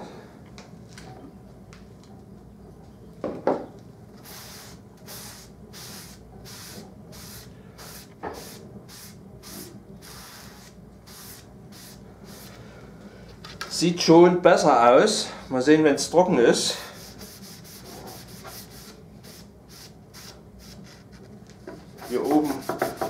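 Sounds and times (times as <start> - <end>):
cloth rubbing on wood: 20.8 - 23.0.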